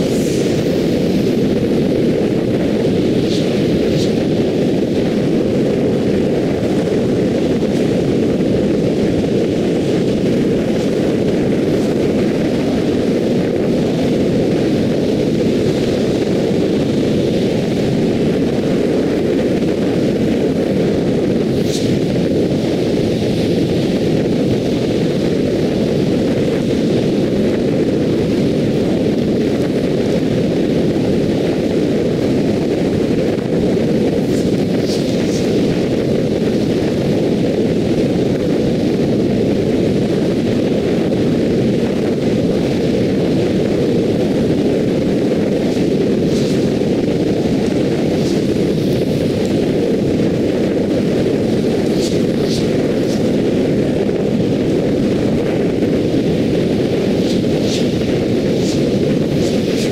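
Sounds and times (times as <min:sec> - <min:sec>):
tyre road noise: 0:00.0 - 0:59.9
wind rush of a car: 0:00.0 - 0:59.9.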